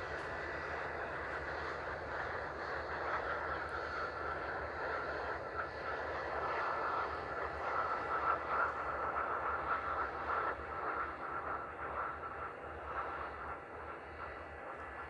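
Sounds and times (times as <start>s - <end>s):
jet engines whining: 0.0s - 10.8s.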